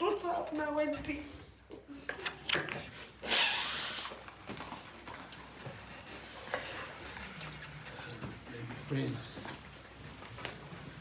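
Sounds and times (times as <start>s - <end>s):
noisy breath through nose: 2.8s - 4.2s.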